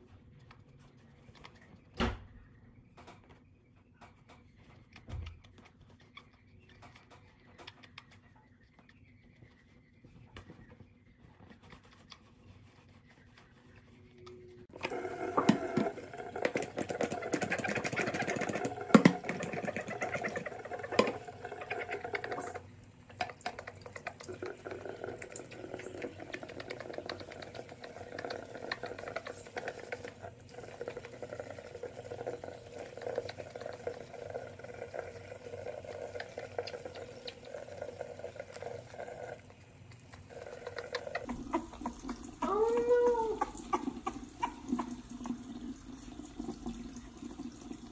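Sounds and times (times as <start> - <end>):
faucet running into sink: 14.7 - 39.6, 40.2 - 47.9.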